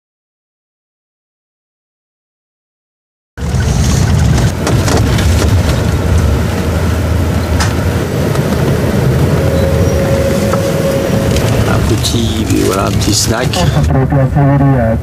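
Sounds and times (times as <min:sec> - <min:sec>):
bus engine rumble: 0:03.4 - 0:15.0
tyres on road: 0:03.4 - 0:15.0.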